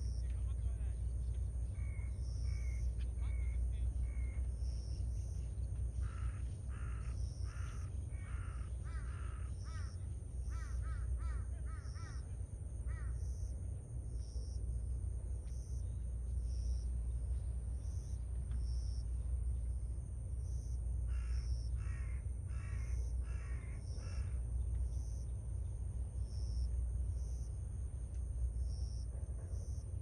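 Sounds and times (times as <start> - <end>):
crow cawing: 1.8 - 4.5, 6.0 - 13.3, 21.1 - 24.4.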